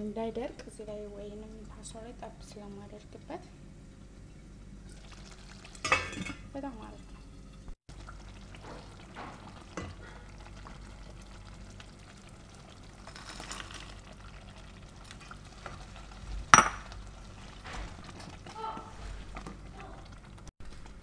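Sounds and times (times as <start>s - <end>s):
sauce simmering and bubbling: 4.4s - 5.9s, 6.6s - 21.0s
wooden spoon stirring and scraping: 12.9s - 14.1s.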